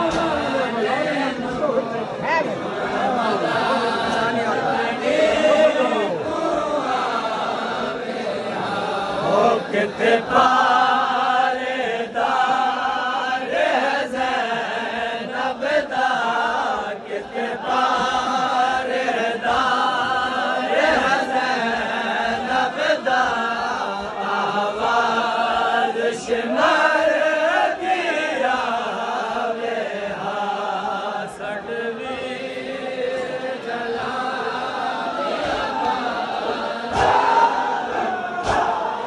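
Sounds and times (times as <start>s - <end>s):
men chanting a lament: 0.0s - 39.0s
hands slapping chests: 38.4s - 38.8s.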